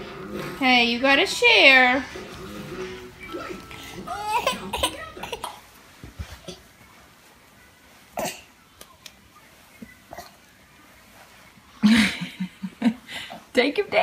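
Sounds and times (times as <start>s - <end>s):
baby squealing and fussing: 3.5s - 5.6s.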